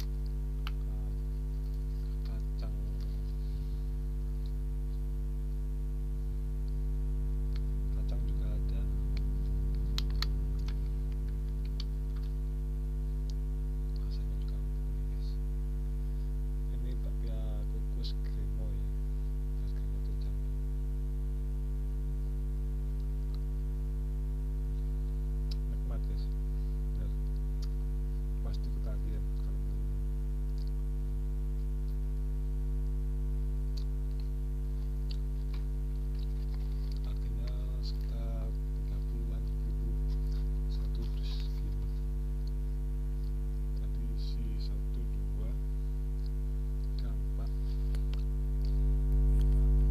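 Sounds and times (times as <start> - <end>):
electrical mains hum: 0.0 - 49.9
mouth chewing: 33.7 - 44.0.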